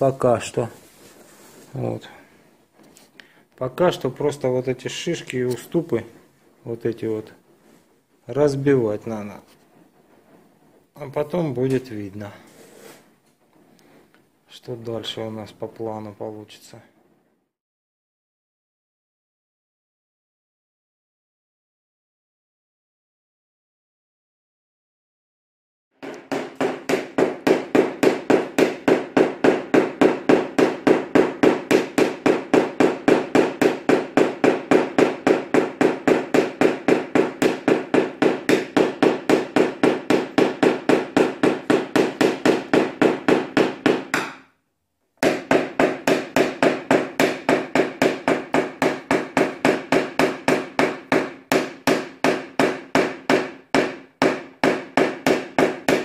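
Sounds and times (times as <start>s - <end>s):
hammer tapping on sheet metal: 26.0s - 44.5s, 45.2s - 56.0s.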